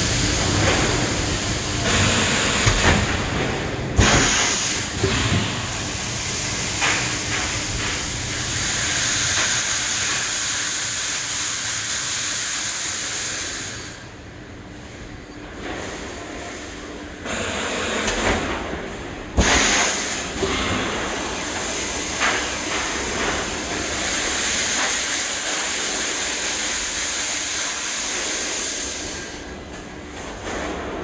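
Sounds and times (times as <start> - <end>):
loud steady hiss: 4.0 - 14.1, 19.4 - 29.5.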